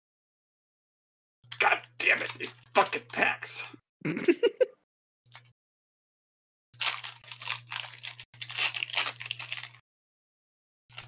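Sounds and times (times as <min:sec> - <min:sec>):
foil wrapper crinkling: 0:01.5 - 0:03.6, 0:06.8 - 0:09.8.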